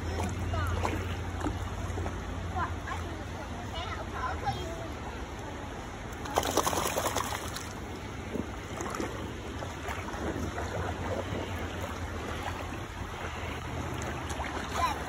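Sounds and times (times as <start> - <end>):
water splashing around swimmers: 0.0 - 15.0
wind rumble on microphone: 7.8 - 14.8.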